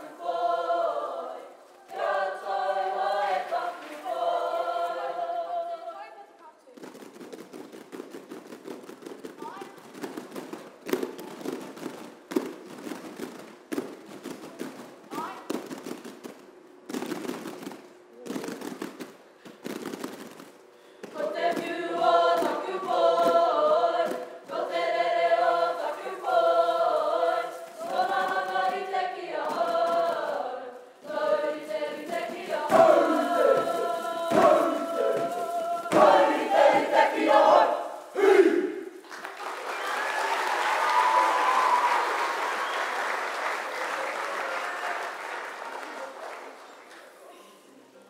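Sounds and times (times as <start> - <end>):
group singing together: 0.0 - 6.1, 21.0 - 39.0
rhythmic poi strikes: 6.8 - 39.0.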